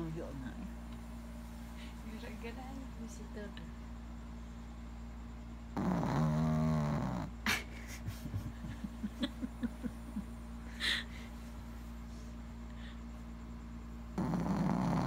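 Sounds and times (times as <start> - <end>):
dog snoring and wheezing: 5.7 - 7.5, 14.1 - 15.0.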